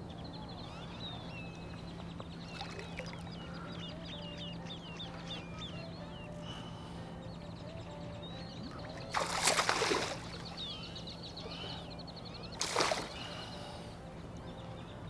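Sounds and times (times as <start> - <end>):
birds chirping: 0.0 - 15.0
fish splashing at surface: 9.1 - 10.3, 12.6 - 13.3.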